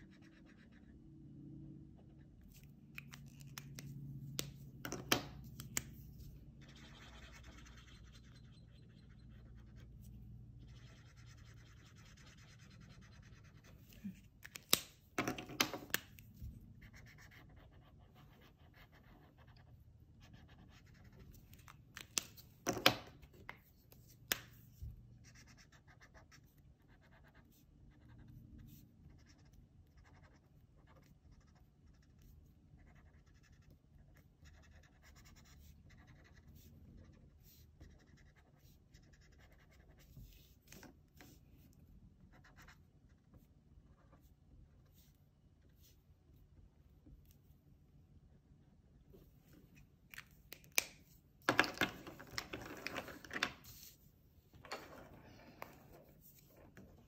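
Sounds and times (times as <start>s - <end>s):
marker rubbing on paper: 5.4s - 14.0s, 28.6s - 41.4s
markers clicking and knocking: 14.4s - 16.3s.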